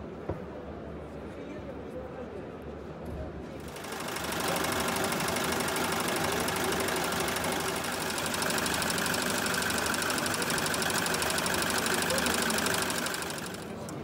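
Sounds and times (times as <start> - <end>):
embroidery machine stitching: 3.6 - 14.0.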